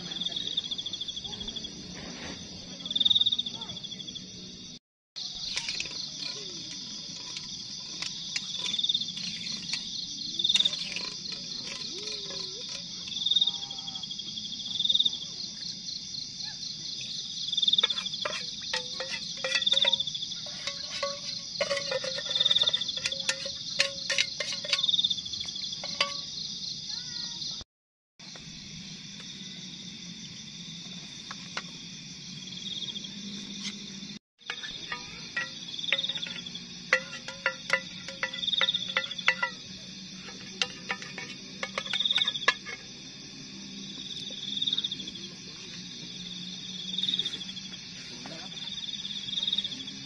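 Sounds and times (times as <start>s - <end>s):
loud insect call: 0.0s - 27.6s, 28.2s - 50.0s
night insects trilling: 0.0s - 27.6s, 28.2s - 50.0s
metal utensil scraping metal pot: 5.2s - 13.7s, 17.2s - 26.5s, 34.4s - 45.1s.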